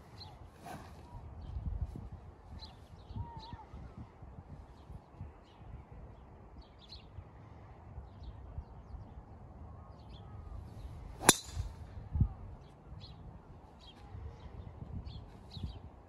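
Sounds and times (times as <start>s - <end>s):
golf club striking ball: 11.2s - 11.8s.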